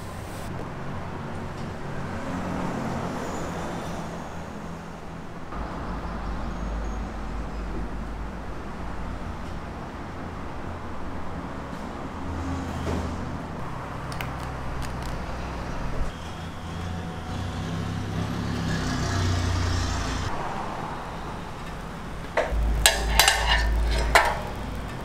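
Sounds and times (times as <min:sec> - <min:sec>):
street and traffic hum: 0:00.0 - 0:25.0
metal clanks and knocks: 0:22.3 - 0:25.0.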